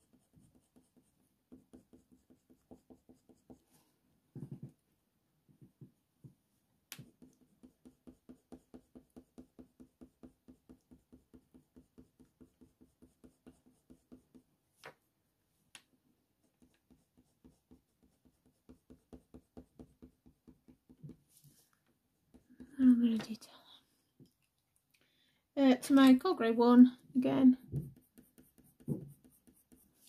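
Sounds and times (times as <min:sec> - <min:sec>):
colour pencil scratching on paper: 0:00.0 - 0:03.9, 0:07.0 - 0:14.5, 0:16.4 - 0:21.6, 0:22.2 - 0:22.9, 0:27.6 - 0:30.0.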